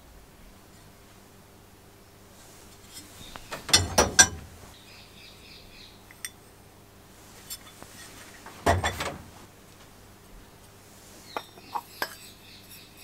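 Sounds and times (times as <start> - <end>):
metal parts clanking: 3.4 - 4.6, 8.6 - 9.3.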